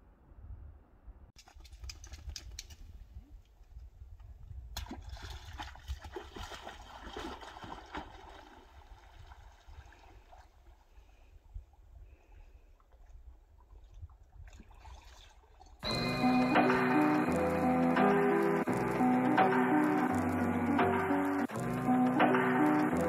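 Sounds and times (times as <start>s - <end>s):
water splashing and dripping: 1.4s - 3.1s, 4.7s - 11.0s, 12.8s - 23.0s.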